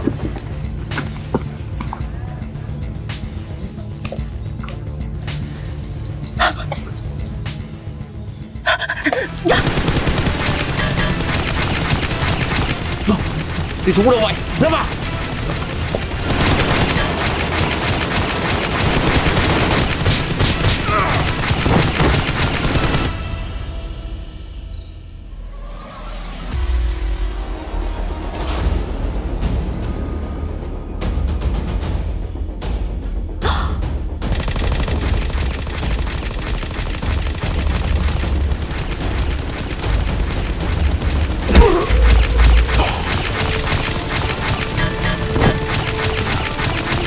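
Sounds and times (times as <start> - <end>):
rapid automatic gunfire: 9.5 - 23.2, 34.3 - 47.0.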